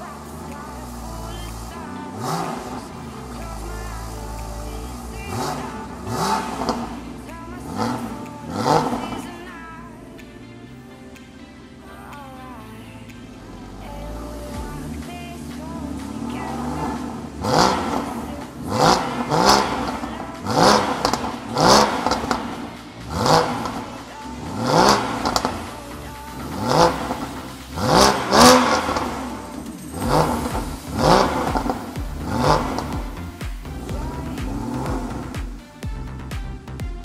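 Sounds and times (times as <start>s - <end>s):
car engine revving in blips: 0.0s - 9.3s, 13.1s - 36.3s.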